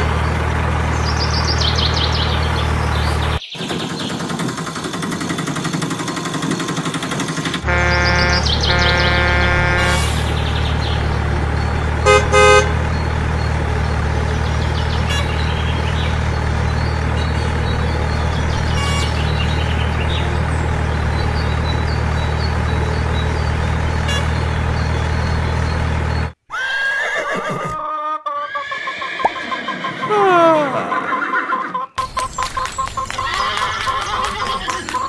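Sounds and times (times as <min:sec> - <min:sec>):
vehicle engine running: 0:00.0 - 0:26.4
car horn beeping: 0:07.6 - 0:10.3, 0:12.0 - 0:12.9, 0:15.0 - 0:15.5, 0:18.6 - 0:19.6, 0:23.9 - 0:25.1
horse whinnying: 0:26.5 - 0:31.9.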